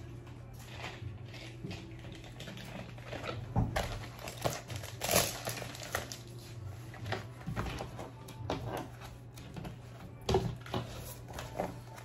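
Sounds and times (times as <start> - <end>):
bubble mailer crinkling: 0.6 - 7.9.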